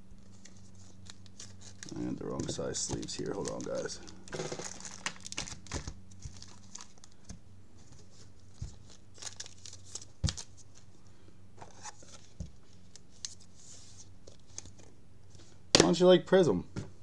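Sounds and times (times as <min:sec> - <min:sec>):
plastic card sleeves crinkling: 0:00.1 - 0:11.0.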